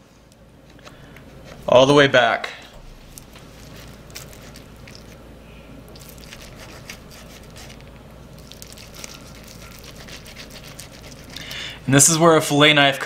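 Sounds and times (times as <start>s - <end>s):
low steady hum: 0.0s - 13.0s
knife slicing roast chicken: 6.0s - 7.8s, 8.7s - 11.4s.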